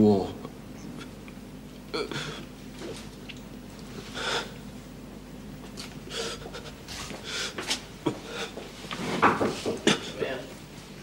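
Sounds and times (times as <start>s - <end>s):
man panting and gasping: 6.1s - 8.6s.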